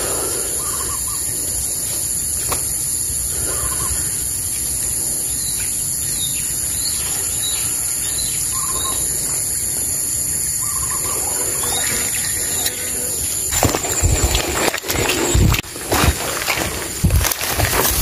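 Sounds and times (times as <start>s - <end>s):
bird chirping: 2.6s - 14.4s.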